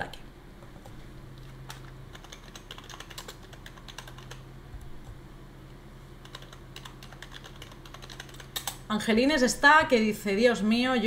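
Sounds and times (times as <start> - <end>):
faint low hum: 0.0 - 11.0
typing on computer keyboard: 1.7 - 4.4, 6.2 - 8.8.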